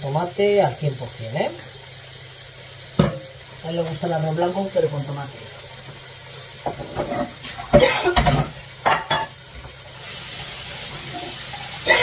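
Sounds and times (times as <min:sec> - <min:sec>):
steak sizzling in a pan: 0:00.0 - 0:12.0
metal utensil scraping a pot: 0:06.8 - 0:07.6.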